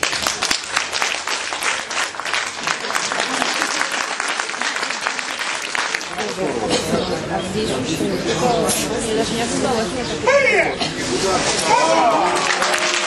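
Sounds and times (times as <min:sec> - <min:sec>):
crowd applauding: 0:00.0 - 0:06.8, 0:11.6 - 0:13.0.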